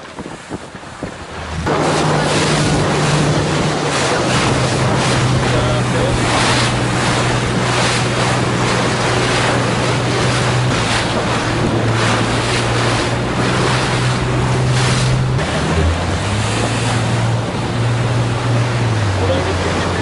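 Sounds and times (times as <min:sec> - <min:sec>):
motorboat engine drone: 0:00.0 - 0:20.0
water rushing and splashing: 0:00.0 - 0:20.0
wind buffeting microphone: 0:00.0 - 0:20.0.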